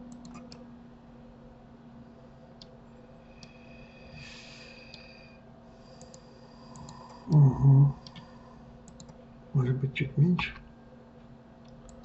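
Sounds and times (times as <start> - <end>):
steady low hum: 0.0 - 12.0
computer mouse clicks: 0.1 - 0.6, 3.4 - 3.6, 5.9 - 7.4, 8.0 - 9.2, 11.6 - 12.0.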